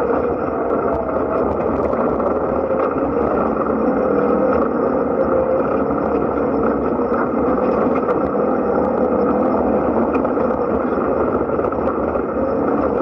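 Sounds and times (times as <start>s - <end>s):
vehicle engine running: 0.0s - 13.0s
wind through open cab: 0.0s - 13.0s.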